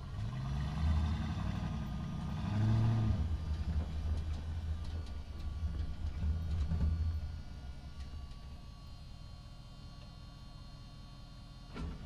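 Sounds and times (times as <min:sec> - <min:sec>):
truck engine revving: 0:00.0 - 0:04.2.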